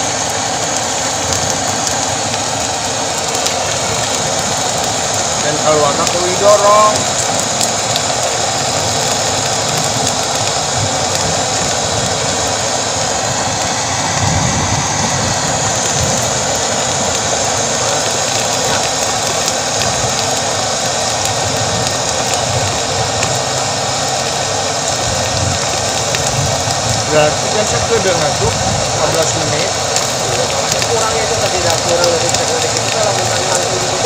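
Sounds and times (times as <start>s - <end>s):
extruder mechanical drone: 0.0s - 34.0s
hiss: 0.0s - 34.0s.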